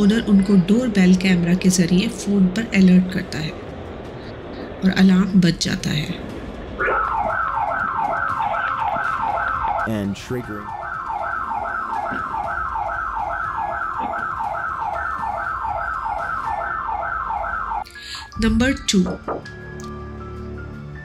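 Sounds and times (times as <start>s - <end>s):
burglar alarm siren whooping: 6.8s - 17.8s.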